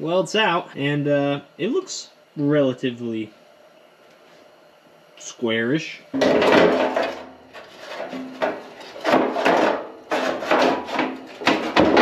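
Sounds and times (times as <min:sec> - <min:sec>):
sheet metal scraping sheet metal: 0:06.3 - 0:12.0.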